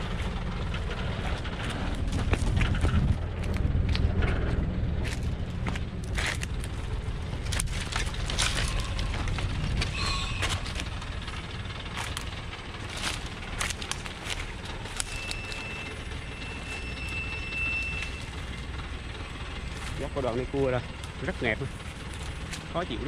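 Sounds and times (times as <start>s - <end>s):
diesel truck rumbling: 0.0s - 23.0s
brush and twigs crackling: 5.0s - 22.9s
thin high whine: 8.6s - 11.1s, 15.0s - 18.6s.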